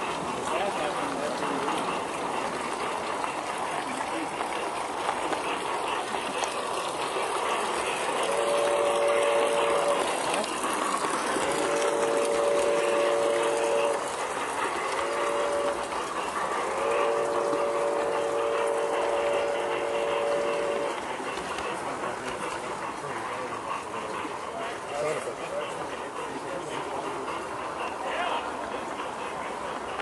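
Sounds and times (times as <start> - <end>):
train rolling on track: 0.0 - 30.0
steam locomotive whistle blasts: 8.3 - 10.0, 11.5 - 14.1, 15.0 - 15.9, 16.7 - 21.0.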